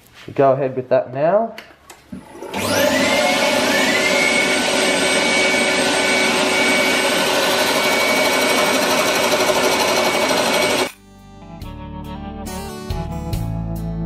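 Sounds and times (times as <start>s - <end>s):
wood lathe whine: 2.2s - 11.0s.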